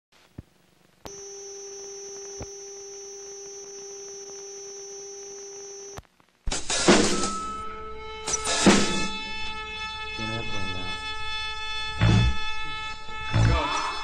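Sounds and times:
faint high whine: 0.3 - 6.4
steady electronic tone: 1.1 - 6.0.

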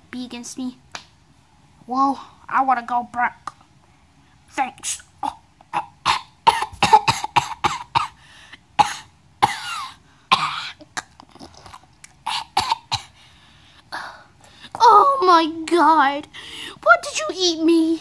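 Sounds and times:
child making mock eating noises: 14.6 - 18.0.

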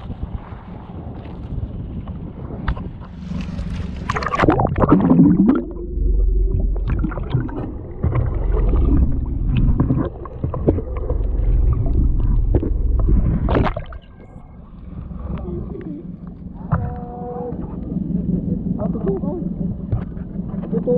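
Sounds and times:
low underwater rumble: 0.0 - 20.9
underwater splashing and bubbling: 2.8 - 20.9
swooping gurgle: 3.1 - 19.7.

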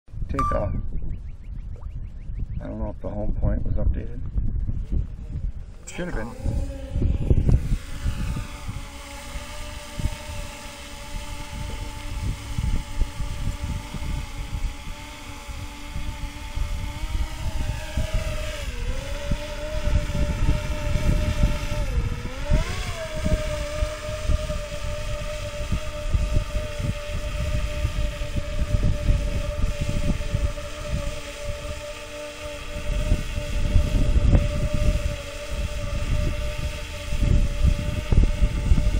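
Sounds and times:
wind rumble on microphone: 0.1 - 38.9
drone propeller whine: 4.6 - 38.9.

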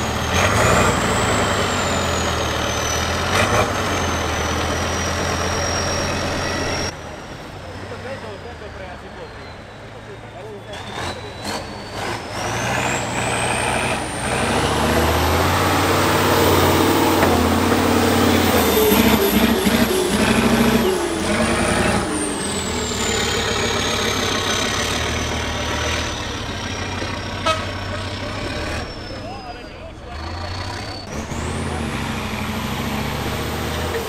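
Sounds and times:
diesel truck engine under load: 0.0 - 34.0.

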